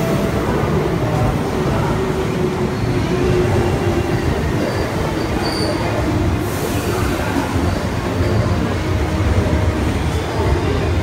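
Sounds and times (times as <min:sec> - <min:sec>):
electric train rumbling past: 0:00.0 - 0:11.0
train wheel squeals: 0:02.6 - 0:08.6.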